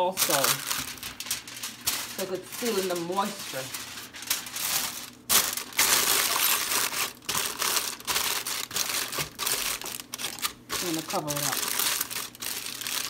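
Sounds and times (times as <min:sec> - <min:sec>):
aluminium foil crinkling: 0:00.0 - 0:13.0.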